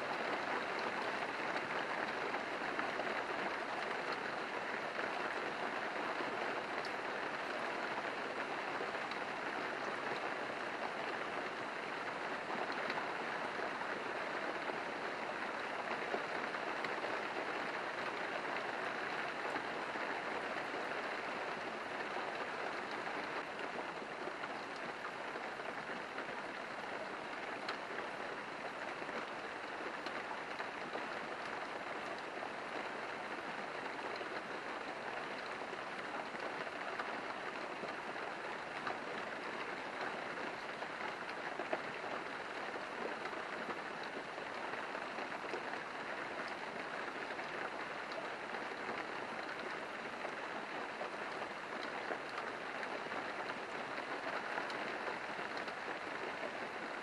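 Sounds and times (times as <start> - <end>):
steady rain: 0.0 - 57.0.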